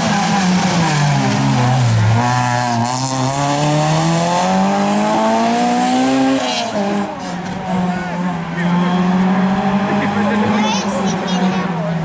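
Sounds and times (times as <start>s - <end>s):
rally car engine passing: 0.0s - 12.0s.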